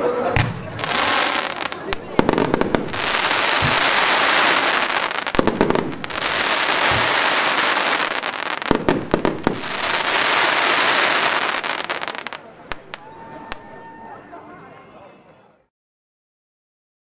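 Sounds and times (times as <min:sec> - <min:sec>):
firework launch shots: 0:00.4 - 0:11.7
firework crackling: 0:00.4 - 0:13.1.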